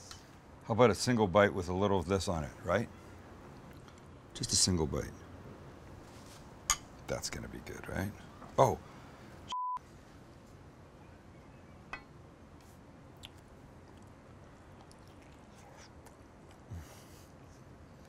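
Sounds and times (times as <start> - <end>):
quiet chewing: 3.5 - 4.1, 13.1 - 18.0
censor bleep: 9.5 - 9.8.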